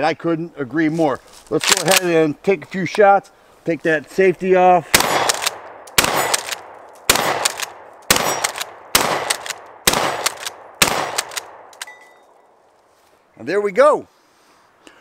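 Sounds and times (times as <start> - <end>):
shotgun blasts echoing: 4.9 - 11.8.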